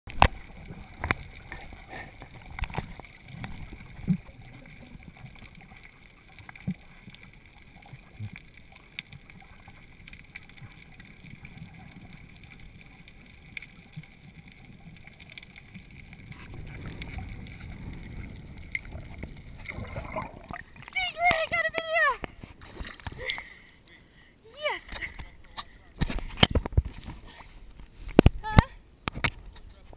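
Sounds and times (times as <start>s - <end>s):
underwater rumble of moving water: 0.1s - 21.3s.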